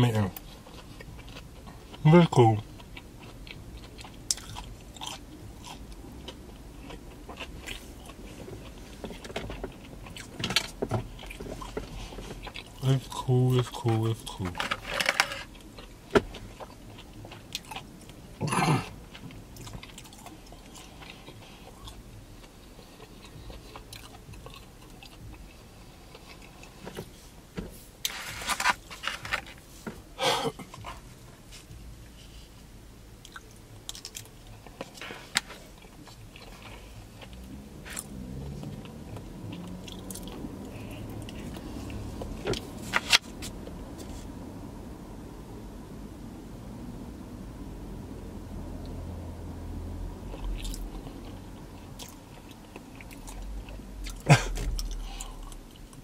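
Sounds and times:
chewing and biting food: 0.3s - 14.6s, 15.4s - 26.9s, 33.2s - 43.0s, 50.2s - 56.0s.

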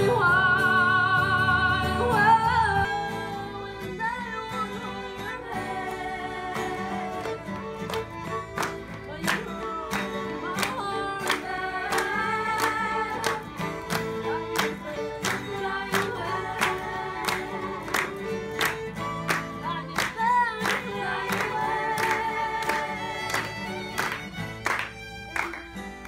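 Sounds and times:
acoustic guitar and fiddle playing: 0.0s - 26.0s
steady sharp claps: 5.8s - 26.0s.

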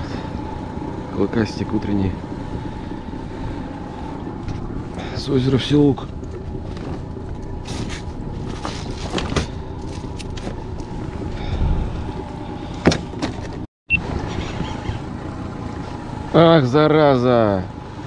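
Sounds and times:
outboard motor running: 0.0s - 18.0s
knocks and clatters in boat: 1.4s - 15.8s.

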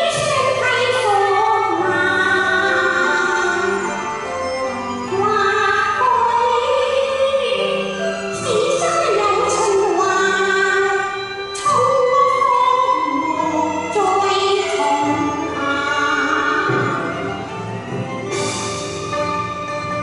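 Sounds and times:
woman singing opera: 0.0s - 4.1s, 5.1s - 7.8s, 8.4s - 17.2s
instrumental accompaniment: 0.0s - 20.0s.

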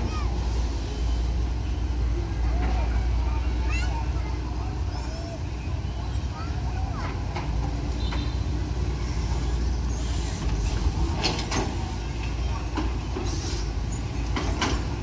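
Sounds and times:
knocks and clatters: 14.2s - 15.0s.

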